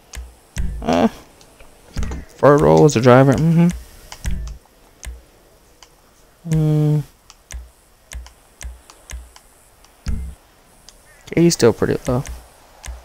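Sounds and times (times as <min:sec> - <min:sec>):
person humming: 0:00.6 - 0:01.3, 0:03.2 - 0:04.5, 0:06.4 - 0:07.1
button clicks: 0:07.4 - 0:10.4.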